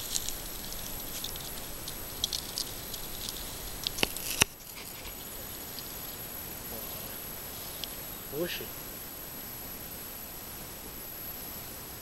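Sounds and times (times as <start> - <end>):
grass and reed stems rustling: 0.0 - 8.5.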